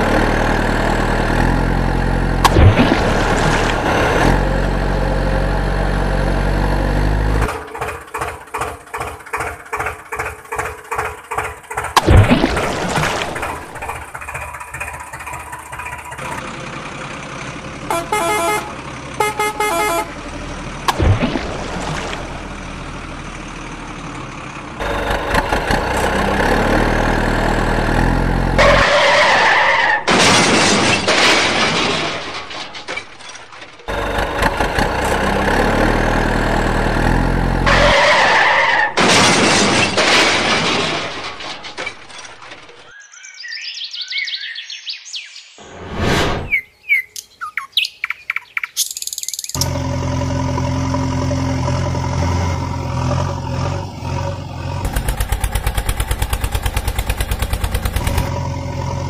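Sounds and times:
truck engine revving: 0.0s - 32.8s, 33.7s - 42.8s, 49.6s - 59.0s
truck horn toots: 17.8s - 20.4s.

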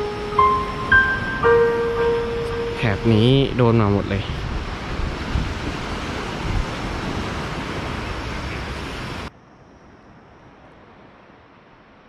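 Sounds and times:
faint steady hiss: 0.0s - 5.8s
surf washing on beach: 0.0s - 9.3s
wind rushing over microphone: 2.4s - 9.3s.

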